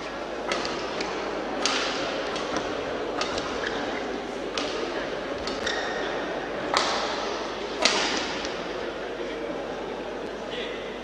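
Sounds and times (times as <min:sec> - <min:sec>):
murmur of voices: 0:00.0 - 0:11.0
racket hitting shuttlecock: 0:00.4 - 0:08.8
shoe squeaking on court: 0:05.4 - 0:06.2.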